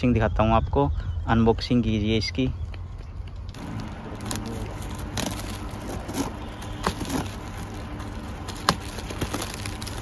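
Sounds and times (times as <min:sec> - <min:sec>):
plastic wrap crinkling: 0:03.6 - 0:10.0
plastic wrap snapping: 0:03.6 - 0:10.0.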